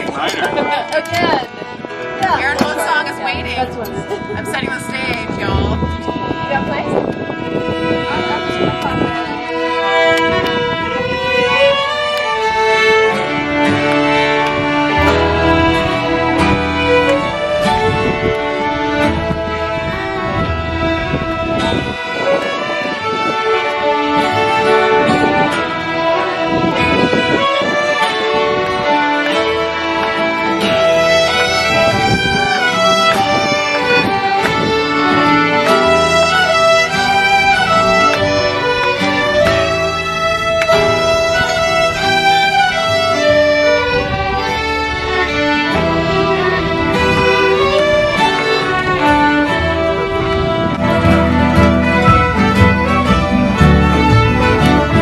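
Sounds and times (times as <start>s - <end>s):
upright bass: 0.0s - 6.9s, 12.5s - 22.0s, 28.6s - 55.0s
fiddles playing a tune: 0.0s - 55.0s.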